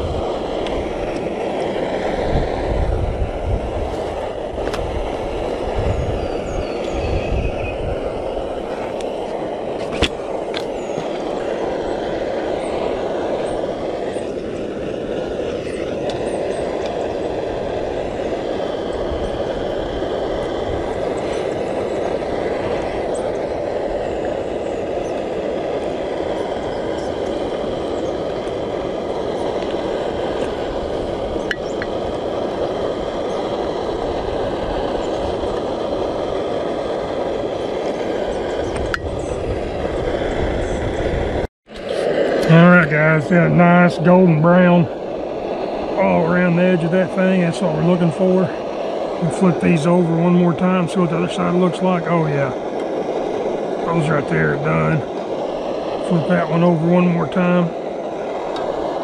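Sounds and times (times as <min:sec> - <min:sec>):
gas stove hissing: 0:00.0 - 0:59.0.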